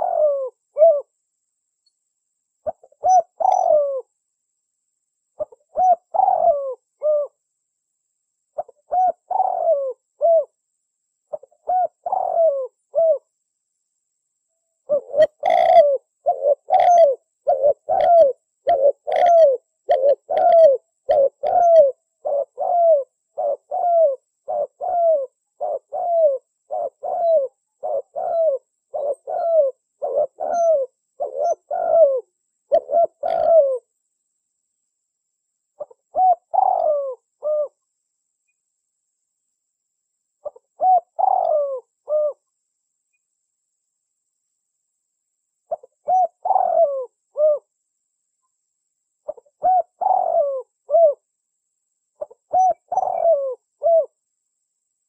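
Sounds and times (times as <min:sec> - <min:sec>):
dove cooing: 0:00.0 - 0:01.1, 0:02.6 - 0:04.1, 0:05.4 - 0:07.4, 0:08.6 - 0:10.6, 0:11.3 - 0:13.3, 0:14.8 - 0:33.9, 0:35.8 - 0:37.8, 0:40.4 - 0:42.4, 0:45.7 - 0:47.7, 0:49.2 - 0:51.3, 0:52.2 - 0:54.2.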